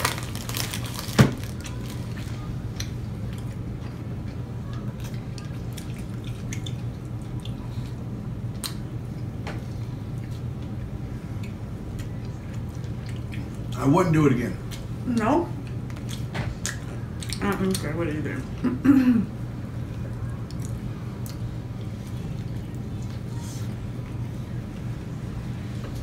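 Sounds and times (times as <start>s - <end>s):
wet chewing and lip-smacking: 2.7s - 9.3s, 11.4s - 13.8s, 15.6s - 17.9s, 20.0s - 23.2s.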